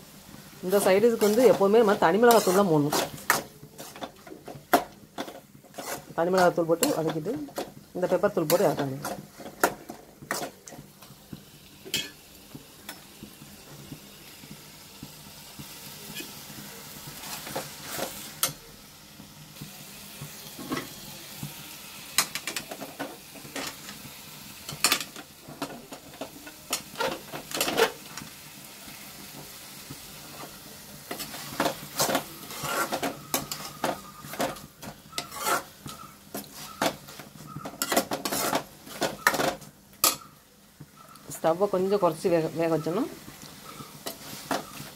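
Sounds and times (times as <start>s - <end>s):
onions sizzling in oil: 0.0s - 44.9s
spoon scraping and knocking pan: 0.7s - 13.9s, 15.0s - 18.7s, 19.6s - 28.3s, 29.2s - 44.9s.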